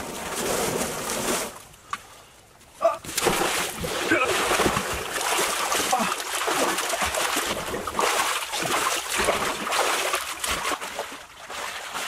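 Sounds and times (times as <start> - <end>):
pool water splashing: 3.0 - 12.0
water running in: 3.2 - 12.0.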